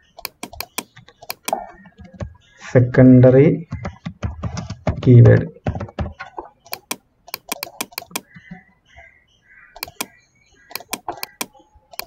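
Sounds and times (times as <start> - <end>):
computer keyboard keystrokes: 0.2 - 2.3, 3.7 - 5.1, 5.7 - 8.5, 9.8 - 10.1, 10.7 - 12.0
mouse clicks: 0.2 - 2.4, 5.7 - 8.6, 9.8 - 12.0.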